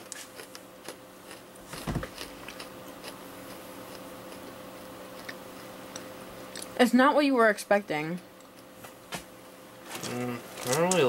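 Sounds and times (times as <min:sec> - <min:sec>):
person chewing crunchy snacks: 0:00.0 - 0:06.7
thump: 0:01.8 - 0:02.1.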